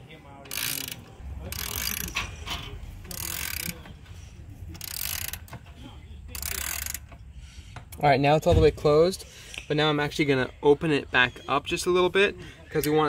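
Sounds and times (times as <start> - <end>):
ratchet wrench clicking: 0.5 - 3.9, 4.7 - 5.7, 6.3 - 7.2.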